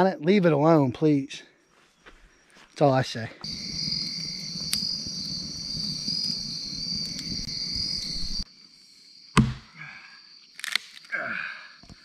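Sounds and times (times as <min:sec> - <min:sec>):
insects shrilling: 0:02.3 - 0:12.0
campfire crackling: 0:03.4 - 0:08.5.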